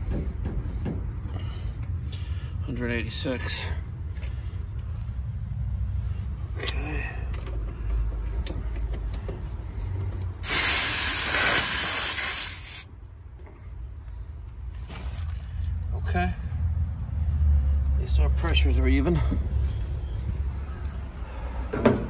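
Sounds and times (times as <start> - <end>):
refrigerant hissing from valve: 10.4 - 12.9.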